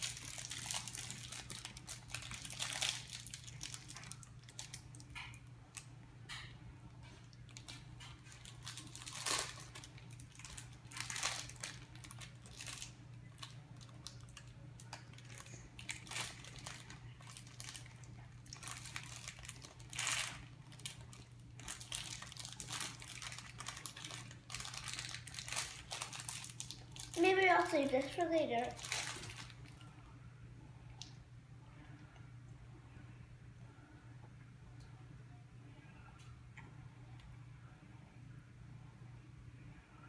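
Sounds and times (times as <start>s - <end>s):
wrapper crinkling: 0.0s - 5.9s, 7.5s - 29.8s.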